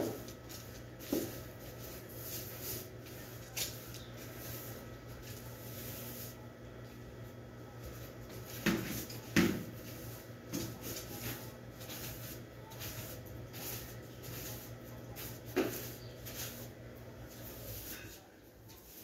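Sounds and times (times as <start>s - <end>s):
broom swishing on tiled floor: 0.0s - 6.4s, 7.8s - 19.0s
steady low hum: 0.0s - 19.0s.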